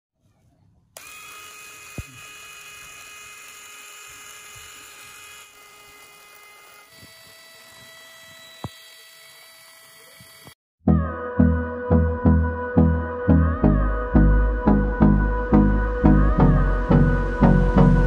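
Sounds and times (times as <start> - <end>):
small electric motor whining: 1.0 - 10.6.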